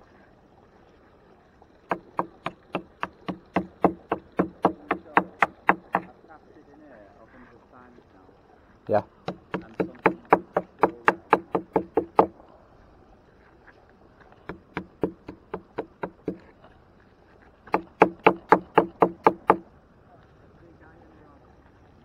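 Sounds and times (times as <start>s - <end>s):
axe head knocking on wood: 1.9s - 6.1s, 9.3s - 12.3s, 14.5s - 16.4s, 17.7s - 19.6s.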